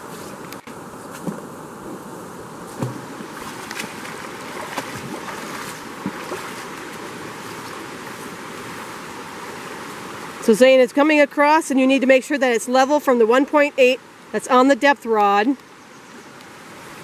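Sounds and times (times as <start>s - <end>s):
forest stream rushing: 0.0s - 17.0s
footsteps wading through water: 2.7s - 9.0s.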